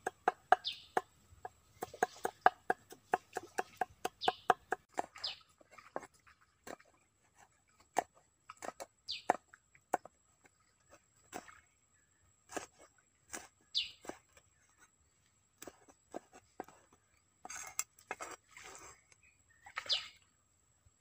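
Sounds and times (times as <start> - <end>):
cleaver chopping on wooden block: 0.0 - 5.2.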